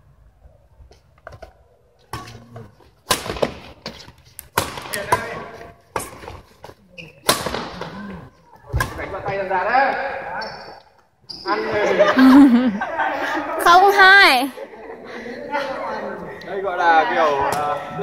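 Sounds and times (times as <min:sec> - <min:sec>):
badminton racket hitting shuttlecock: 0:03.0 - 0:03.8, 0:04.4 - 0:06.3, 0:07.2 - 0:07.8.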